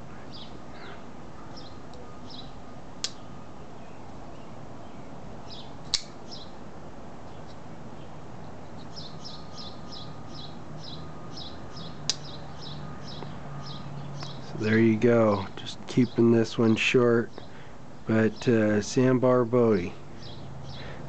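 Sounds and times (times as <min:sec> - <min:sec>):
small bird chirping: 0:00.3 - 0:06.6, 0:07.2 - 0:14.8
folding knife blade clicks: 0:03.0 - 0:03.2, 0:05.9 - 0:06.2.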